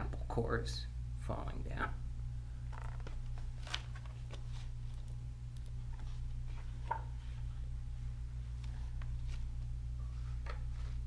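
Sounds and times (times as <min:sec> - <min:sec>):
steady low hum: 0:00.0 - 0:11.0
book rustling and tapping: 0:05.9 - 0:07.3.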